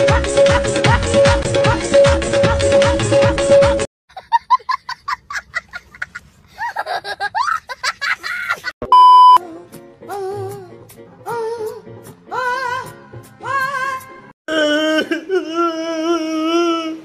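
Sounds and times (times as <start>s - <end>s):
person singing: 0.0s - 3.9s, 9.4s - 17.0s
child laughing: 4.1s - 8.8s
test-card beep: 8.9s - 9.4s.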